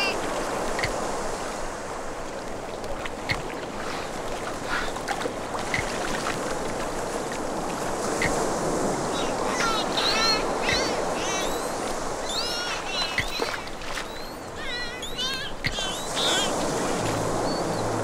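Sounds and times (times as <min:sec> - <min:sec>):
ocean surf washing: 0:00.0 - 0:18.0
squeaky wavering whistle calls: 0:09.1 - 0:16.5.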